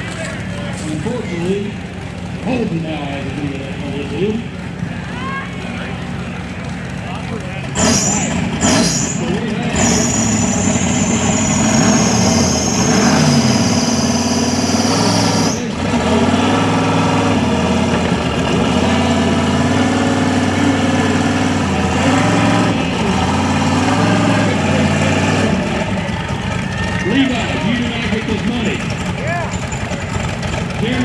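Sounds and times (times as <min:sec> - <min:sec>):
engine idling with revs: 0:00.0 - 0:31.0.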